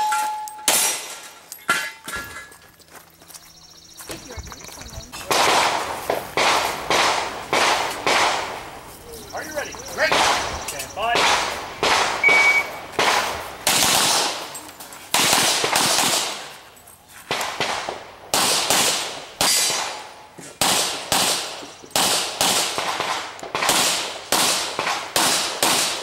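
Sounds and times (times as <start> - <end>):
handgun shots: 5.3 - 8.5, 11.1 - 16.5.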